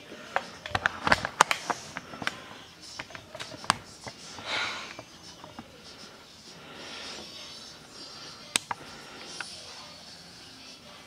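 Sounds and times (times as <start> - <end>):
handling clicks and taps: 0.3 - 4.2.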